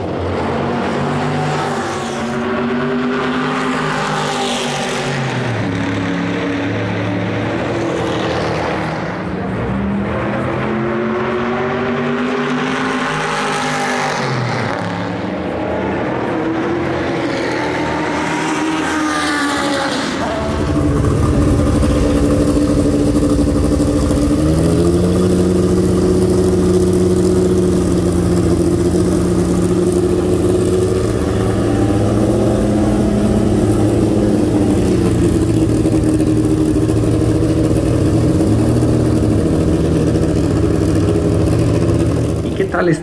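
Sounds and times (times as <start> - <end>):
car engine at low revs: 20.0 - 43.0.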